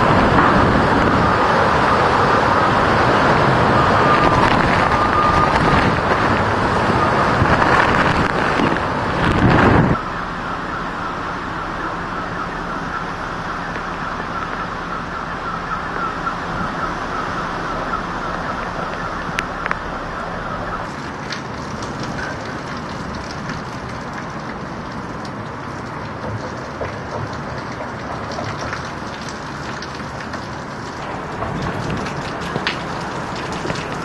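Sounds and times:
faint pulsing alarm tone: 0.0 - 21.1
driving rain: 0.0 - 34.0
hurricane wind: 0.0 - 34.0.

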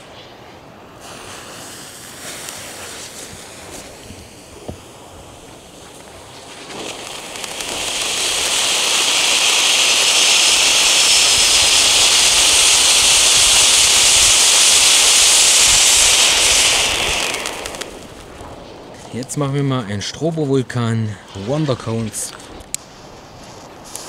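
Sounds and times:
fountain fireworks hissing: 0.0 - 19.0.

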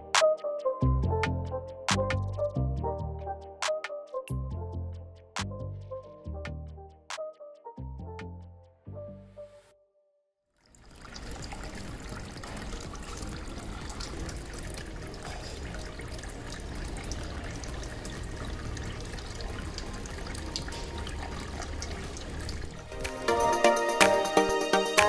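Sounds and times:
water pouring from fountain: 10.6 - 25.0.

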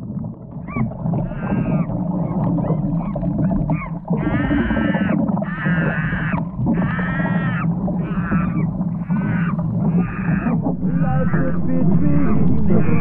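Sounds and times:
high pitched cries: 4.2 - 13.0
steady low hum: 7.8 - 13.0.

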